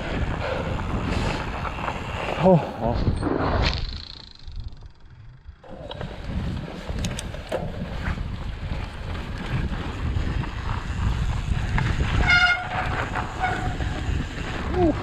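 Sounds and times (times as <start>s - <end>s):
bike rolling through deep snow: 0.0s - 15.0s
wind buffeting microphone: 0.0s - 15.0s
small clicks: 6.9s - 7.6s.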